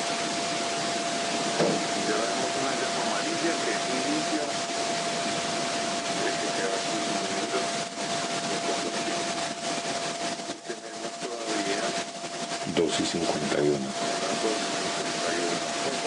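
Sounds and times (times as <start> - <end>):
high-pitched whine: 0.0 - 16.0
water boiling hiss: 0.0 - 16.0.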